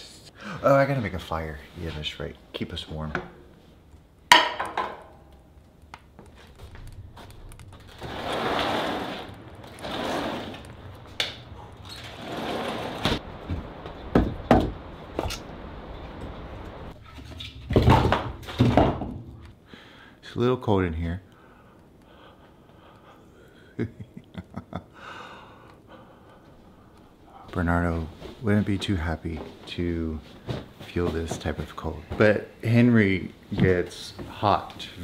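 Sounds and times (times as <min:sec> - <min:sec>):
firewood knocking: 0:04.3 - 0:05.2, 0:13.4 - 0:15.3
rustling: 0:05.2 - 0:14.1.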